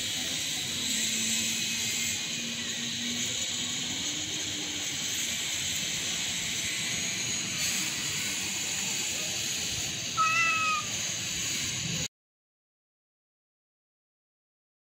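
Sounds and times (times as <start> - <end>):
cat meowing: 10.2 - 11.0.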